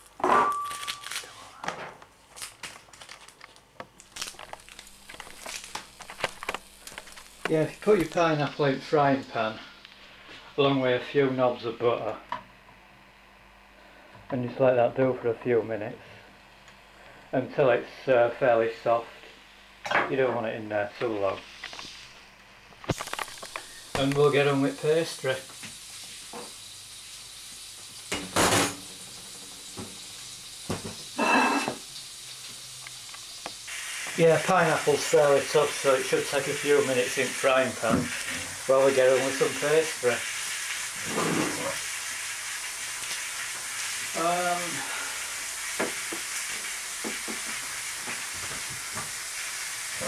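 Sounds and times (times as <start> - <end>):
kitchenware clattering: 0.2 - 1.0, 28.1 - 28.9
fruit sizzling in a frying pan: 2.4 - 50.0.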